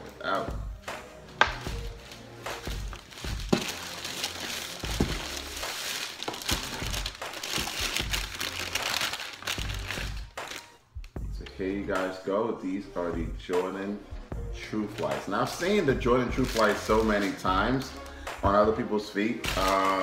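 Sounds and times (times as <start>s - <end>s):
cloth bag rustling: 1.3s - 10.6s
tissue paper crinkling: 1.7s - 10.8s, 16.4s - 17.5s, 19.4s - 20.0s.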